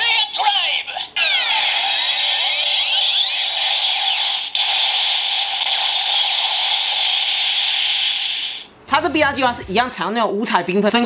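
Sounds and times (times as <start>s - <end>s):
electronic sweeping tones: 1.1s - 9.4s
sustained rushing hiss: 4.6s - 8.7s.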